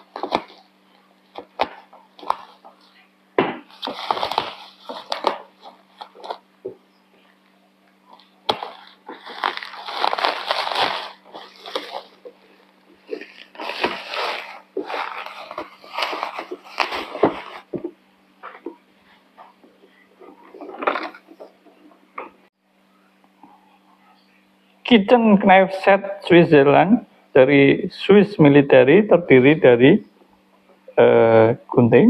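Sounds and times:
plastic packaging crinkling: 0.0 - 0.7, 1.3 - 3.0, 3.7 - 6.4, 8.1 - 18.8, 20.2 - 21.9
steady low hum: 0.0 - 32.0.

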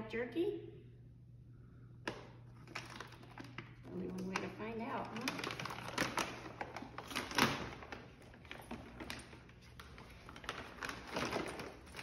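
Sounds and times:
wrapping paper crinkling and tearing: 2.6 - 12.0.

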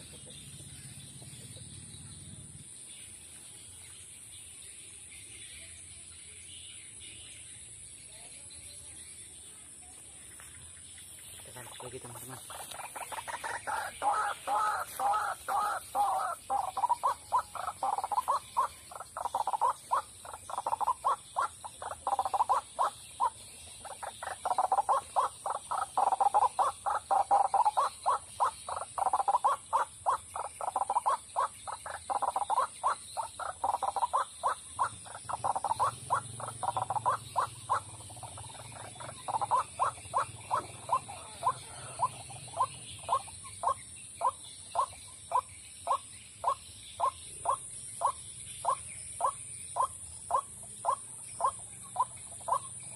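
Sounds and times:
waterhen croaking calls: 11.7 - 52.9.

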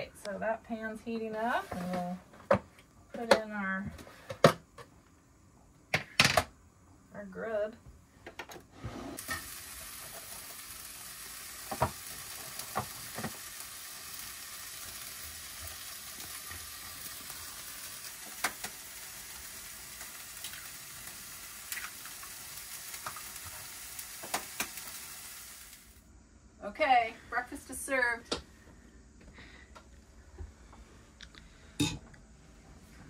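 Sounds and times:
eggs sizzling in a frying pan: 9.2 - 26.1.

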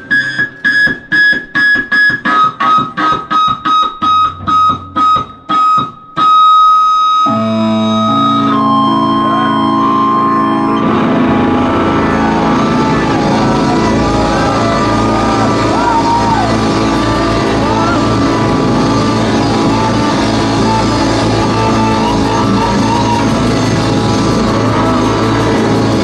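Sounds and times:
rock band playing: 0.0 - 26.0
electric guitar chord stabs: 7.2 - 26.0.

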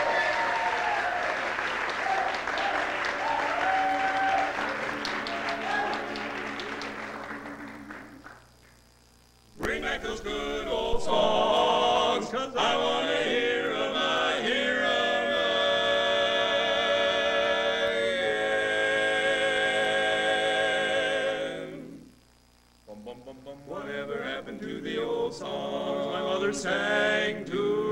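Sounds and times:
male quartet singing a cappella: 9.6 - 22.1, 22.9 - 27.9.

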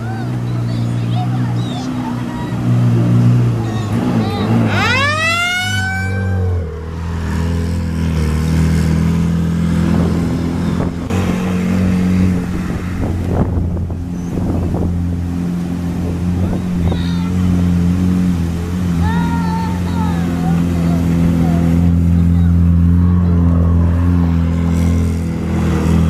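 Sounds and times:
vehicle engine running: 0.0 - 26.0
wind noise on microphone: 8.9 - 17.6.

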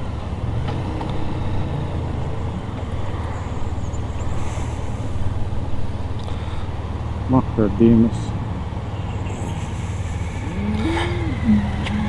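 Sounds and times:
road and wind noise: 0.0 - 12.0.

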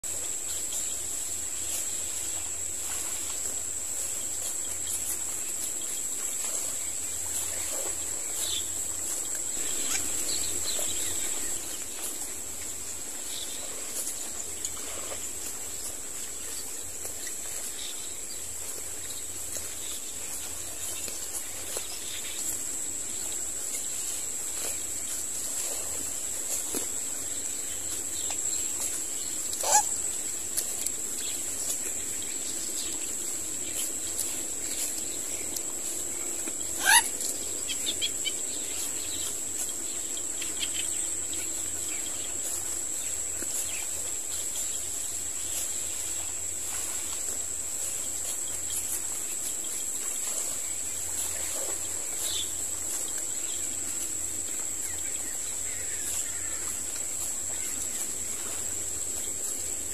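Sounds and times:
sharp bird calls: 29.6 - 30.0, 36.7 - 38.1.

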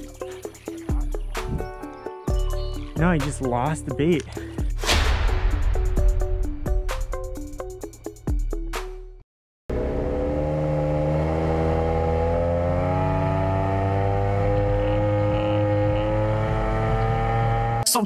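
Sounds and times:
music: 0.0 - 9.2
boat engine running: 9.7 - 17.8.

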